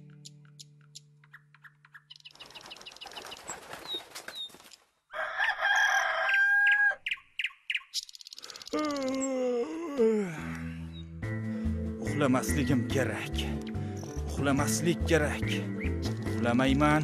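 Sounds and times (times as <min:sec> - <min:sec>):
rooster crowing: 0:05.1 - 0:07.0.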